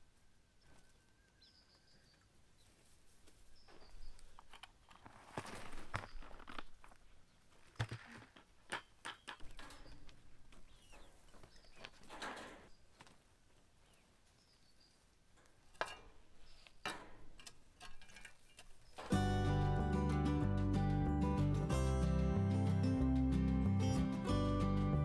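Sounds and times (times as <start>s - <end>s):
faint bird chirps: 0.5s - 2.8s.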